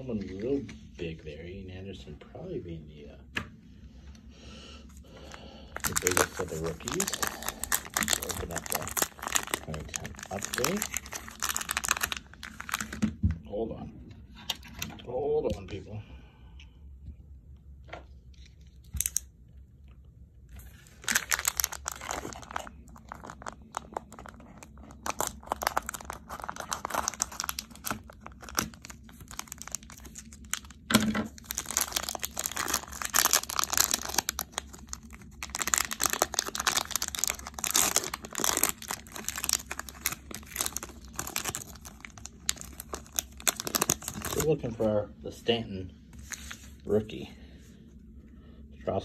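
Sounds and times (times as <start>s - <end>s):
plastic wrapper crinkling and tearing: 5.2s - 13.1s, 18.3s - 19.3s, 20.5s - 44.8s, 46.2s - 46.8s.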